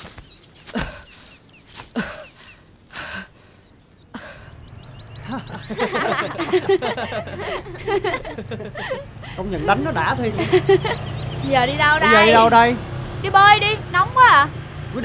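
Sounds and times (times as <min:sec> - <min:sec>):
small birds chirping: 0:00.0 - 0:15.0
people talking and chuckling: 0:04.2 - 0:12.8.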